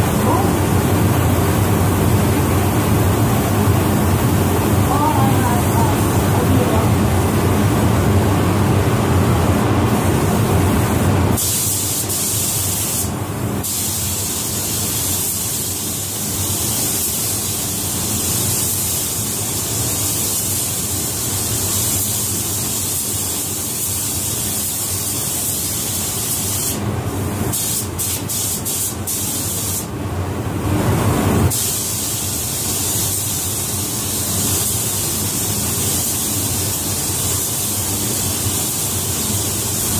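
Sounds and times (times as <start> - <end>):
paint spray gun hissing: 11.4 - 26.8, 27.5 - 29.9, 31.5 - 39.9.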